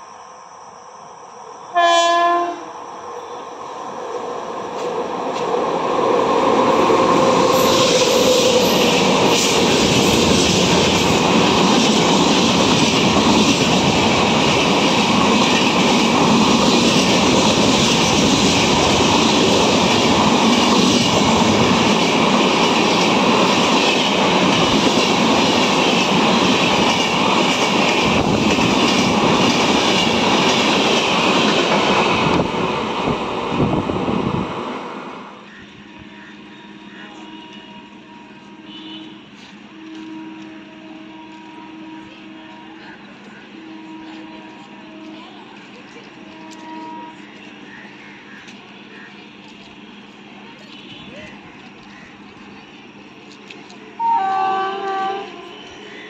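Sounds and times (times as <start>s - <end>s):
train coaches rushing past: 0.0s - 56.0s
train horn blast: 1.7s - 2.7s, 35.5s - 45.5s, 46.2s - 47.4s, 54.0s - 56.0s
wheels clattering on rails: 7.0s - 33.1s.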